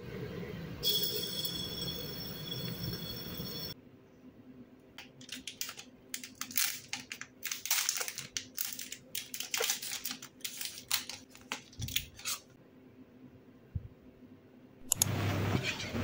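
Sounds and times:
packaging crinkling: 5.0 - 12.4.

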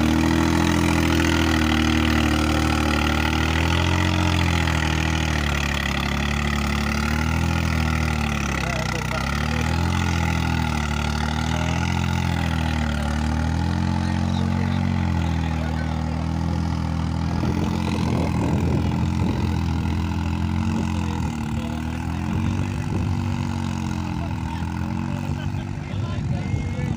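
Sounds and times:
low rumbling buffets: 0.0 - 26.9
tractor diesel engine running: 0.0 - 26.9.

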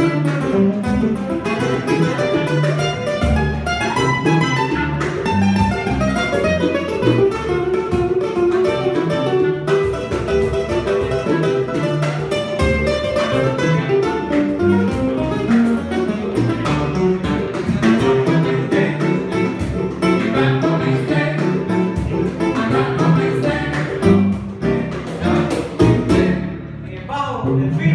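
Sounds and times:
clarinet melody: 0.0 - 20.8
small band playing: 0.0 - 27.9.

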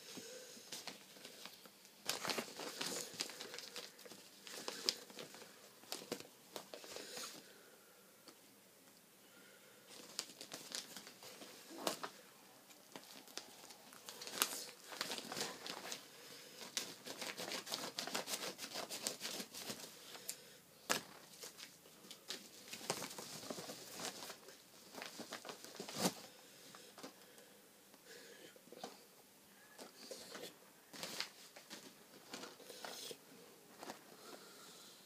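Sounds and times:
envelope crinkling and rustling: 0.7 - 7.4, 9.9 - 20.3, 20.9 - 26.3, 30.9 - 32.6
envelope tearing: 16.6 - 19.9.

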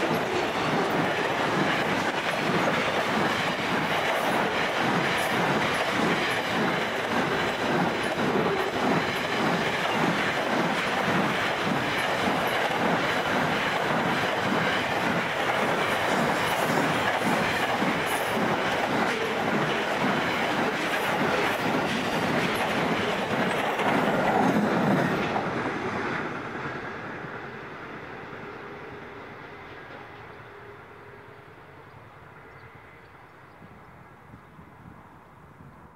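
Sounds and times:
freight train wheels clacking: 0.0 - 26.7.

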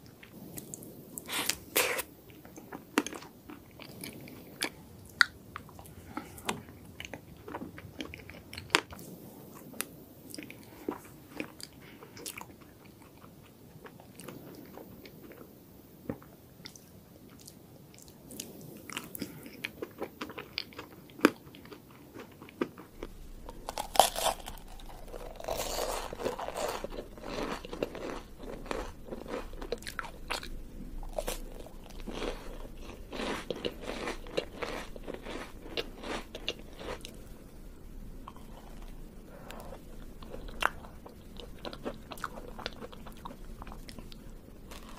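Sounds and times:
biting and crunching: 18.9 - 37.3, 38.3 - 44.9.

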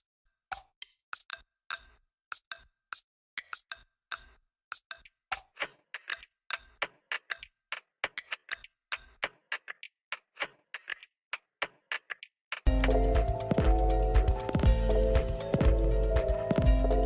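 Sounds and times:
dry clicking percussion: 0.5 - 17.0
music: 12.7 - 17.0.

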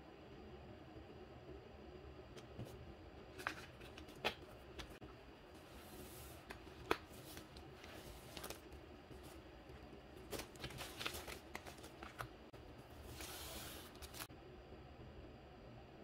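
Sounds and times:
paper rustling: 5.6 - 9.4, 10.2 - 12.4, 13.0 - 14.3.

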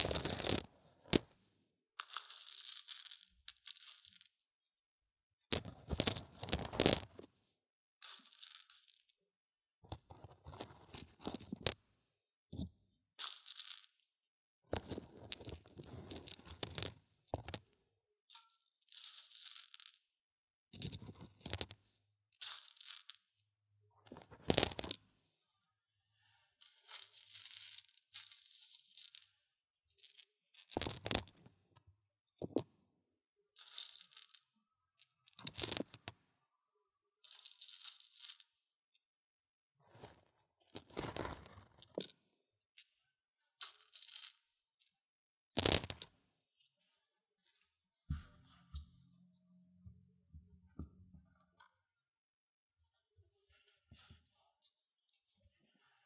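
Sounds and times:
dried beans rustling: 0.0 - 0.6.

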